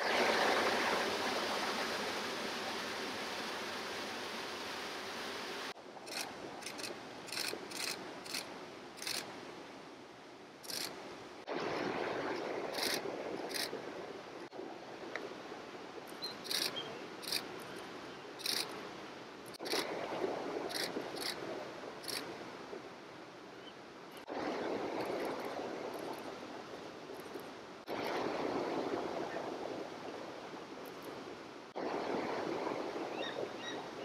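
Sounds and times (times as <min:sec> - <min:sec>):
flowing water rushing: 0:00.0 - 0:34.0.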